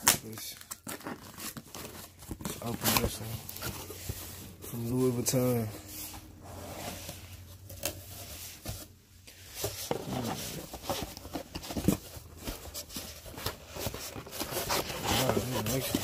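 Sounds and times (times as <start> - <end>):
cardboard box being opened: 0.6 - 4.9, 9.5 - 16.0
paperboard boxes sliding and lifted: 5.8 - 16.0.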